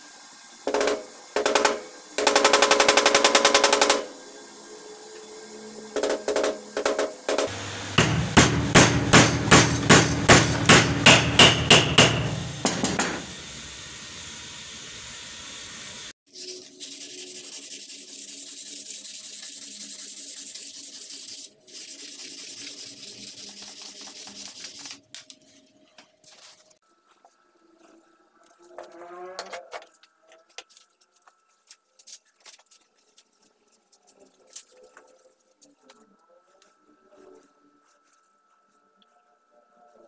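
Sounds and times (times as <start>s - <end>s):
sandpaper rubbing on metal: 16.3s - 25.1s.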